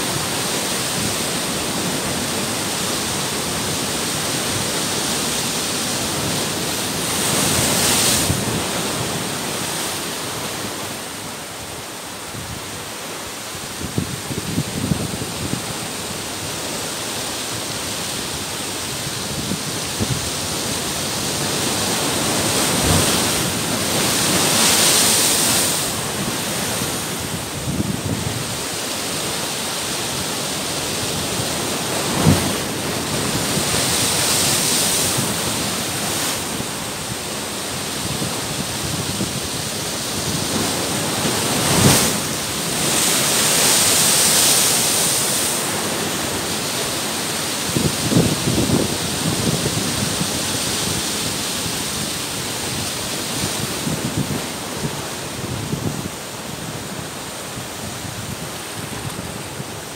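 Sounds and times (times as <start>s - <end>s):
ocean surf breaking on rocks: 0.0s - 59.9s
waves thumping against rocks: 13.8s - 59.9s.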